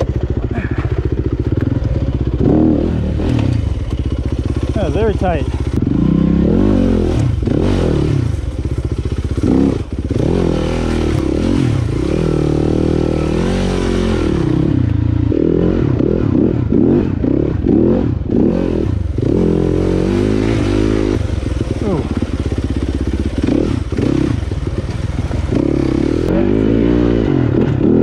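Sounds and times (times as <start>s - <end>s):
dirt bike engine revving: 0.0s - 28.0s.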